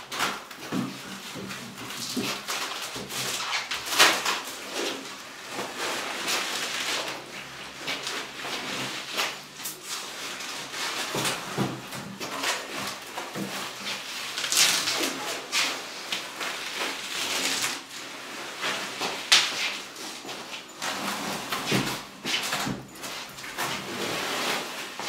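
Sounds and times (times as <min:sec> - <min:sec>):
plastic wrap rustling and crackling: 0:00.0 - 0:25.0.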